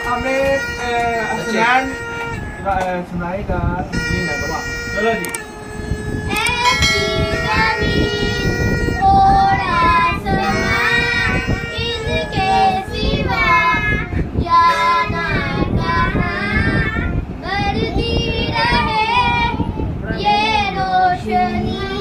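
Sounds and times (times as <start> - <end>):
boy singing: 6.3 - 22.0.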